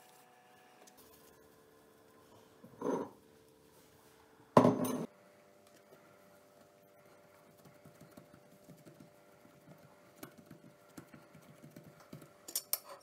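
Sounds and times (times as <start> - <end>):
hands patting dough: 6.5 - 12.5.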